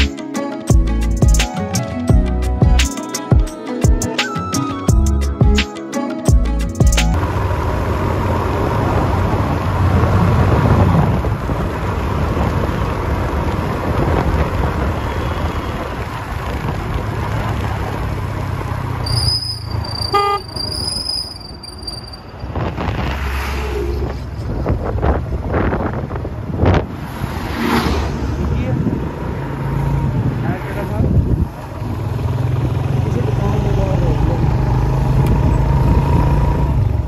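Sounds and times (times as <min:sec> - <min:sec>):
road vehicle rumble: 0:06.4 - 0:37.0
high whistle-like tone: 0:19.0 - 0:22.5
horn toot: 0:19.1 - 0:20.7
rushing air: 0:22.2 - 0:30.4.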